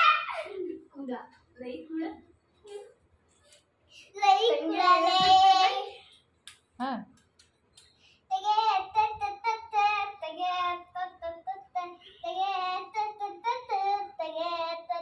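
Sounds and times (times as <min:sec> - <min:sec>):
child singing: 0:04.2 - 0:06.0, 0:08.3 - 0:15.0.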